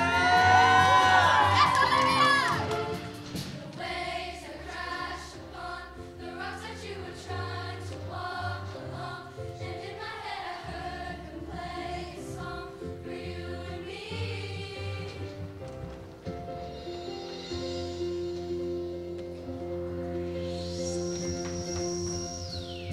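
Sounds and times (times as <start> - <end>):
choir singing: 2.4 - 15.6.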